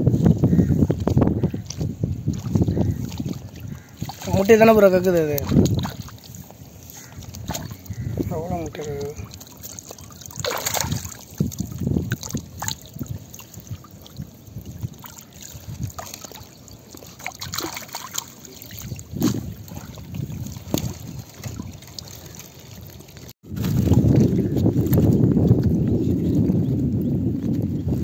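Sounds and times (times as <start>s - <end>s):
water trickling and dripping: 1.0s - 23.4s.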